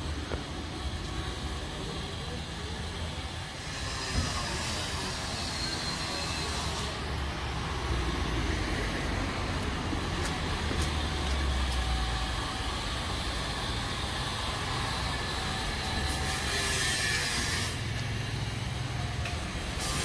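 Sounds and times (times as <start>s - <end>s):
low traffic rumble: 0.0s - 20.0s
cars passing: 6.8s - 20.0s.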